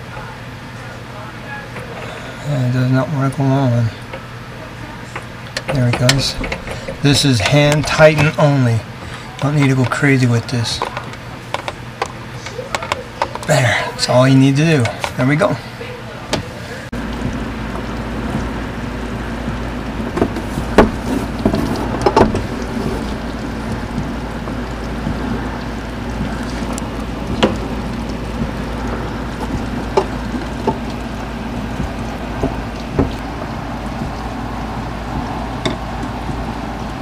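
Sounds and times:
steady low hum: 0:00.0 - 0:37.0
sharp clicks and knocks: 0:05.1 - 0:10.1, 0:10.7 - 0:13.5, 0:19.4 - 0:34.3.

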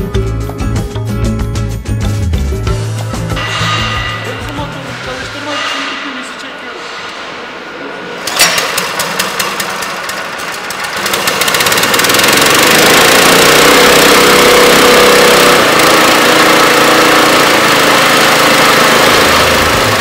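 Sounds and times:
recoil rope pull start: 0:08.3 - 0:20.0
small gasoline engine running: 0:08.4 - 0:20.0.

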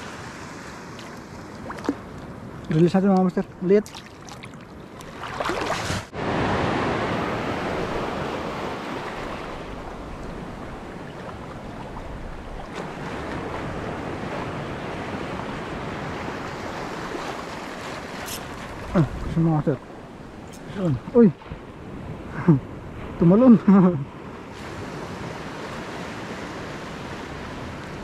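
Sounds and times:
wind: 0:00.0 - 0:28.0
surf breaking over reef: 0:05.2 - 0:19.5.

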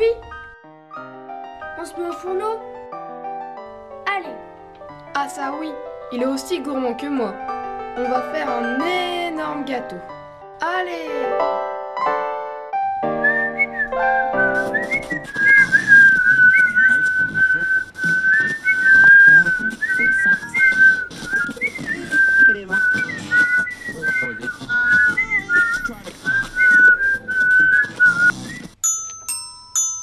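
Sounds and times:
whistled tune: 0:13.1 - 0:28.8.

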